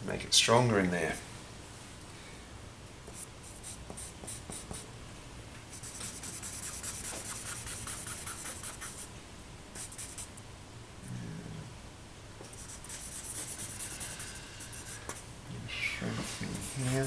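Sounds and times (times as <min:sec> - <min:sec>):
charcoal scratching on paper: 0:03.2 - 0:04.8, 0:05.7 - 0:09.1, 0:09.8 - 0:10.3, 0:12.5 - 0:15.2, 0:16.2 - 0:17.0.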